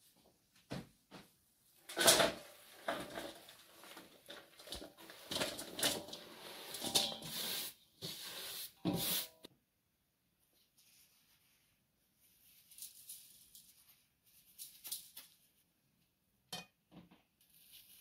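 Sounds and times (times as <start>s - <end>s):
cabbage rustling into a steel bowl: 1.9s - 9.4s.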